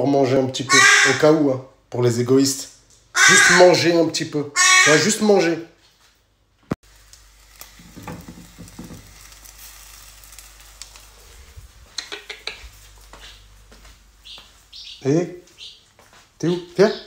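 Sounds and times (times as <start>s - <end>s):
food sizzling in a frying pan: 6.8s - 12.0s
light knocks of pan: 7.8s - 9.1s.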